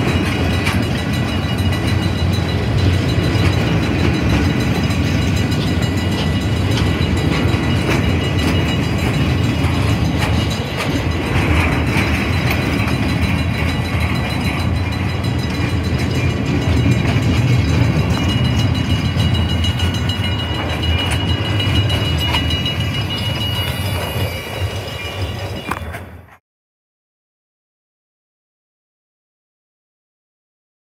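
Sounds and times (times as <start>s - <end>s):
clanks and rattles: 0.0s - 24.1s
train wheels rumbling on rails: 0.0s - 26.4s.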